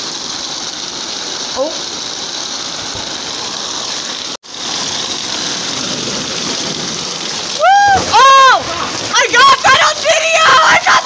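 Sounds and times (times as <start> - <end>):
heavy rain pouring: 0.0 - 11.0
person exclaiming loudly: 7.6 - 11.0.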